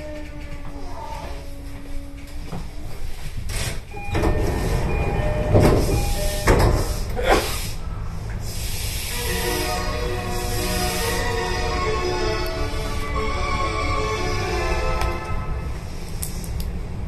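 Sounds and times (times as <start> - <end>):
short steady beeping tones: 4.0 - 6.9
air hissing: 5.8 - 13.2.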